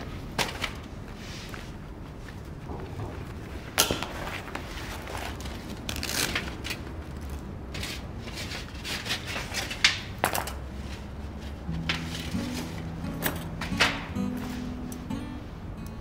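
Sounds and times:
rustling: 10.6s - 14.8s.

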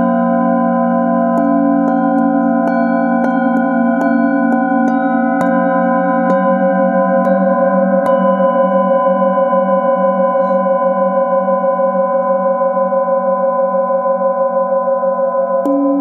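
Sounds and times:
singing bowls ringing: 0.0s - 16.0s
wooden mallet striking bowl: 1.3s - 9.0s.

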